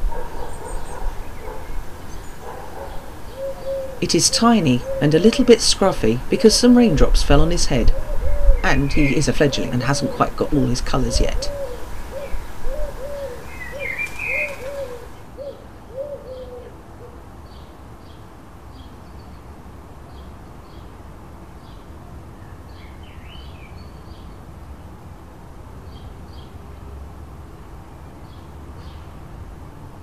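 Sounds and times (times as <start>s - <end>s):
pigeon cooing: 0.0s - 5.4s, 7.8s - 17.2s
small birds chirping: 0.0s - 16.6s.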